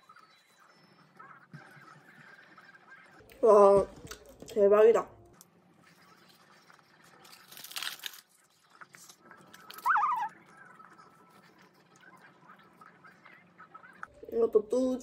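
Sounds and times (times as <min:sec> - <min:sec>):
soft chewing: 0:05.2 - 0:14.2
paper crinkling: 0:06.2 - 0:10.3.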